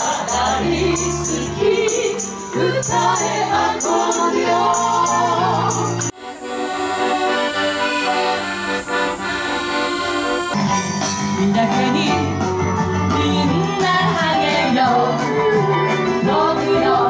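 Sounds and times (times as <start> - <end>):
accordion playing chords: 0.0 - 16.9
live music with bass line: 7.4 - 17.0.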